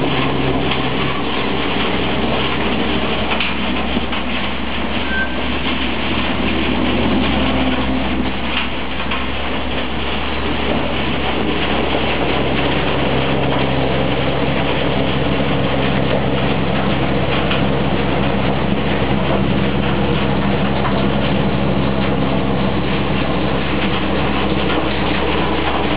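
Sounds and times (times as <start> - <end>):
low machine hum: 0.0 - 25.9.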